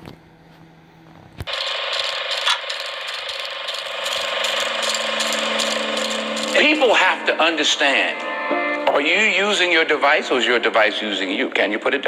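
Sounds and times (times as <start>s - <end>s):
steady mechanical clatter: 1.4s - 6.9s.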